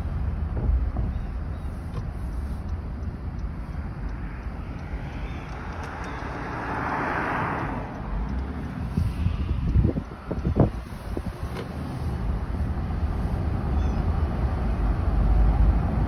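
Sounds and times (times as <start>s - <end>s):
car road noise: 0.0s - 16.0s
wind rumble on microphone: 0.0s - 16.0s.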